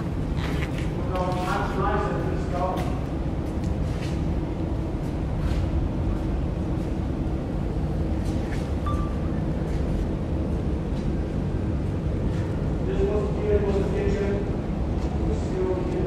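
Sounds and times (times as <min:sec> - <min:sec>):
high beep: 0:08.8 - 0:09.3.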